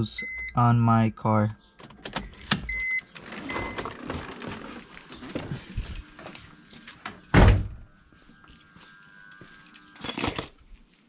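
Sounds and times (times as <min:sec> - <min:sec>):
rustling and clatter: 0:03.1 - 0:06.5.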